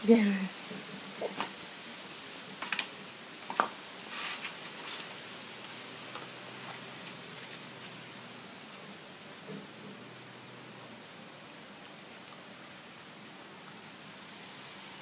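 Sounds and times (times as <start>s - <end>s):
steady hiss: 0.0s - 15.0s
claws scraping plastic: 2.6s - 5.2s.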